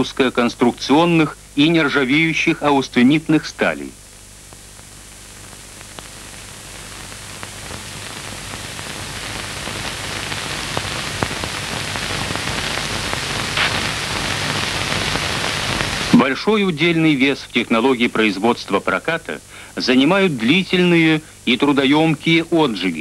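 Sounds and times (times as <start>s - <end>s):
rushing hiss: 13.5s - 16.3s.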